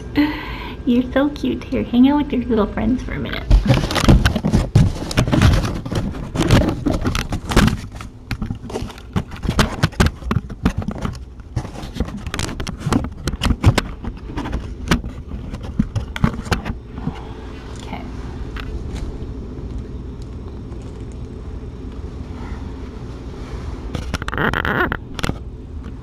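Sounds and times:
camera handling knocks and rustles: 0:03.5 - 0:16.8.

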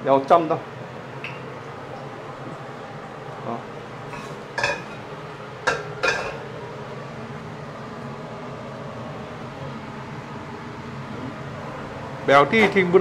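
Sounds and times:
steady low hum: 0:00.0 - 0:13.0
metal cookware clanking: 0:04.1 - 0:06.5.

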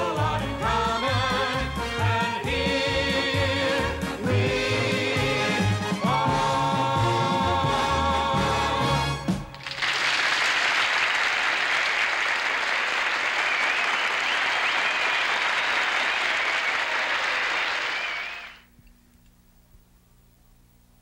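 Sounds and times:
studio audience applauding: 0:09.5 - 0:18.6
faint low hum: 0:18.1 - 0:21.0.

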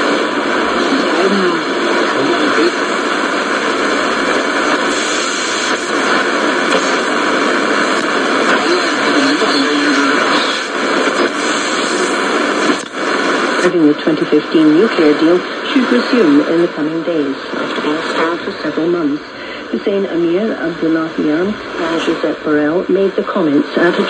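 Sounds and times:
faint radio station audio: 0:00.0 - 0:24.0
radio static hiss: 0:00.0 - 0:24.0.

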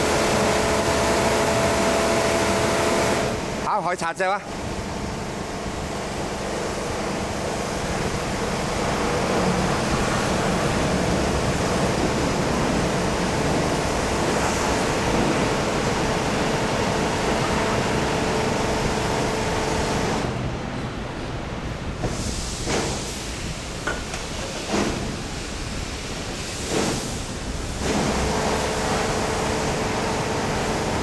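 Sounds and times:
water spray rushing: 0:06.2 - 0:20.4, 0:24.4 - 0:31.0.

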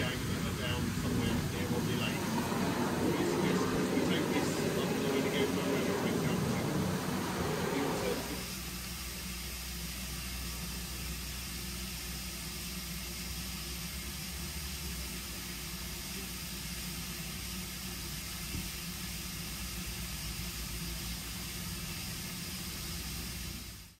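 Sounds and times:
low hum: 0:00.0 - 0:08.6
steam hissing from locomotive: 0:00.0 - 0:24.0.

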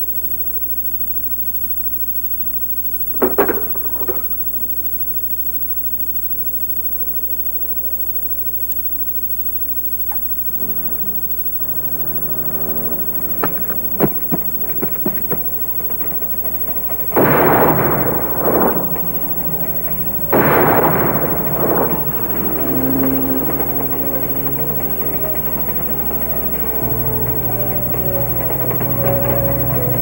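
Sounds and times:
tape hiss and hum: 0:09.8 - 0:30.0
rifle shots: 0:17.0 - 0:28.2.

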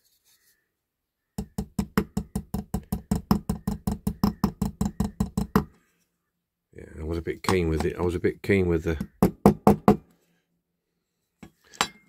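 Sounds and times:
small hammer tapping on metal: 0:01.4 - 0:05.7.

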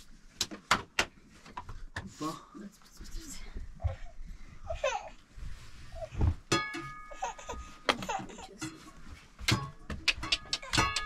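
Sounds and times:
baby laughing: 0:07.1 - 0:08.6.

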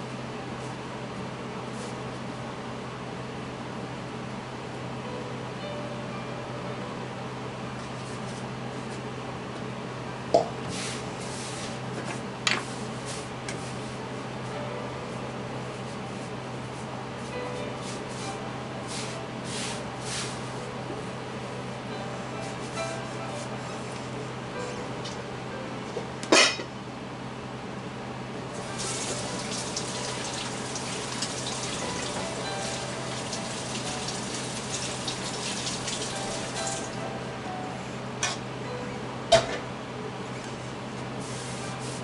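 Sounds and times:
hand rubbing through flour: 0:10.7 - 0:11.8, 0:17.8 - 0:20.6, 0:41.2 - 0:42.0
water running: 0:28.6 - 0:36.9.

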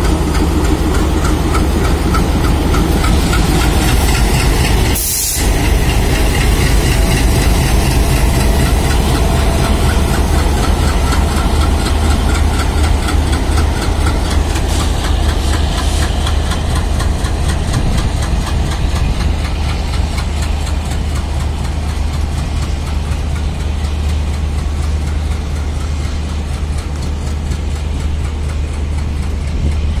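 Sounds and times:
diesel locomotive engine drone: 0:00.0 - 0:30.0.

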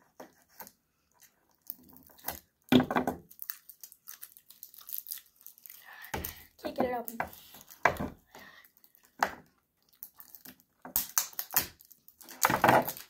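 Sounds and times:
plastic packaging crinkling: 0:01.2 - 0:07.8, 0:09.8 - 0:13.0.

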